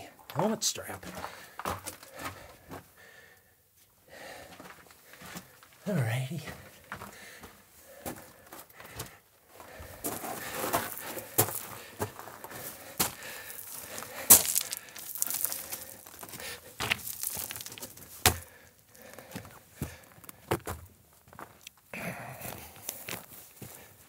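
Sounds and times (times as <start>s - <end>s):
footsteps crunching on gravel: 1.0s - 2.9s, 6.4s - 21.8s, 22.5s - 23.9s
stones knocking together: 13.1s - 18.6s.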